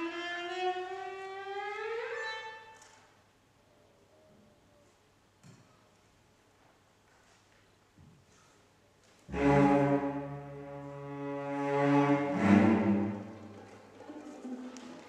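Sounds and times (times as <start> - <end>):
orchestra strings sustained chord: 9.3 - 13.6.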